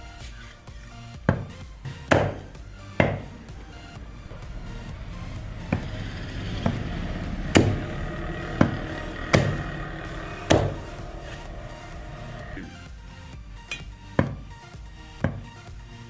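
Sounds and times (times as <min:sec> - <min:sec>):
knife chopping fish on wood: 0:02.1 - 0:02.4.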